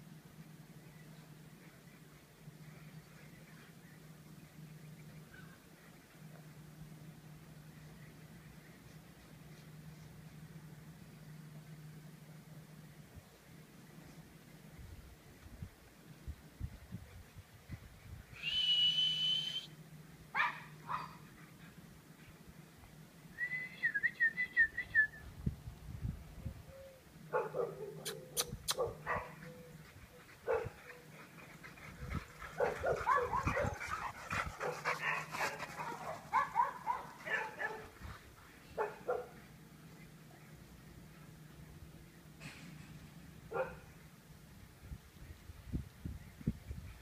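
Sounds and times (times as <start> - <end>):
puppies yapping and barking: 28.0 - 37.8.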